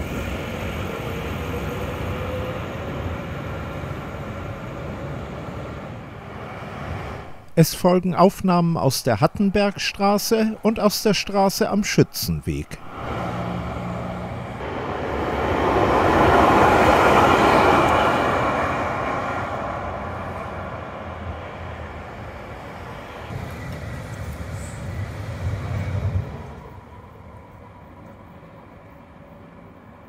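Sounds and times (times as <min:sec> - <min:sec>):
tram rolling on track: 0:00.0 - 0:30.0.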